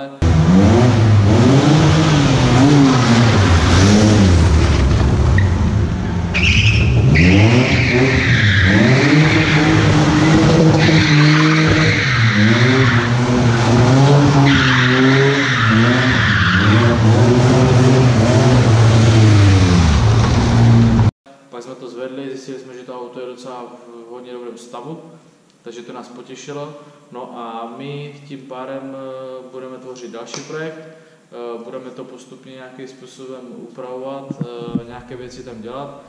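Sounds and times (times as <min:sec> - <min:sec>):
car engine revving: 0:00.2 - 0:21.1
tyres squealing: 0:05.2 - 0:17.1.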